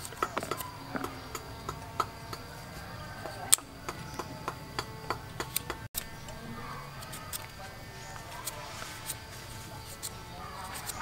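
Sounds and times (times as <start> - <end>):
cleaver scraping pumpkin rind: 5.4 - 11.0.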